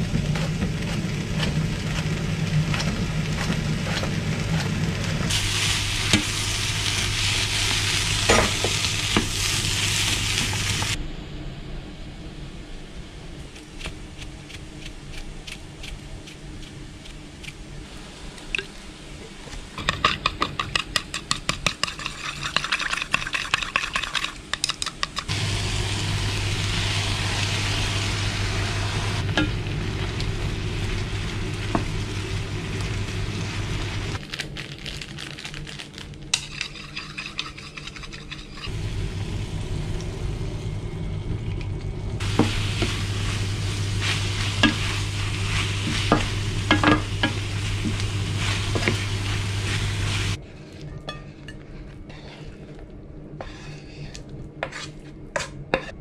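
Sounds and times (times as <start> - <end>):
steady sizzle: 0.0 - 11.0, 13.2 - 34.2, 35.0 - 50.4
vegetables stir-frying in a pan: 0.0 - 11.0, 19.5 - 34.2, 34.8 - 40.6, 42.2 - 50.4
low hum: 0.0 - 15.4, 25.3 - 34.2, 37.3 - 54.6.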